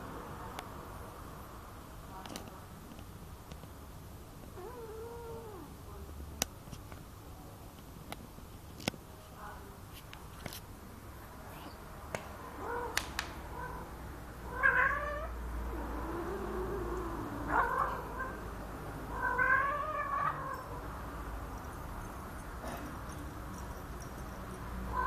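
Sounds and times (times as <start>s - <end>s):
cats yowling: 4.6s - 5.8s, 12.6s - 20.9s.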